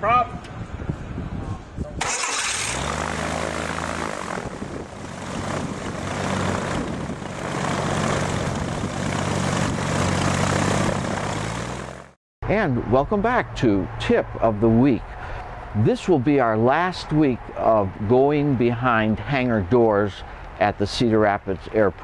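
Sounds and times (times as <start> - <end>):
aircraft engine turning propeller: 0.4 - 16.0.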